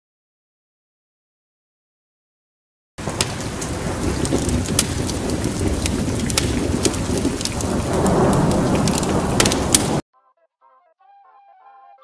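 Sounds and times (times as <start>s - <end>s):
sharp crackles: 3.0s - 10.0s.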